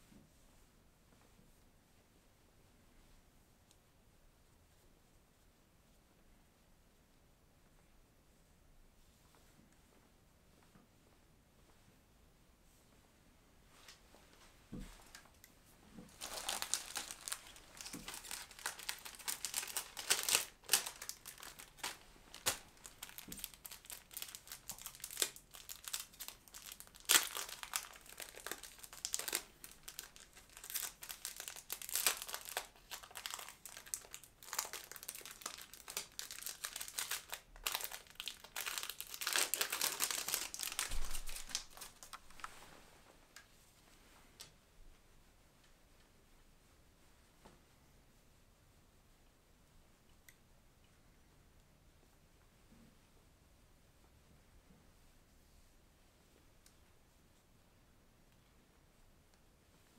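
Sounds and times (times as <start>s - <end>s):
plastic film crinkling: 16.1s - 42.6s.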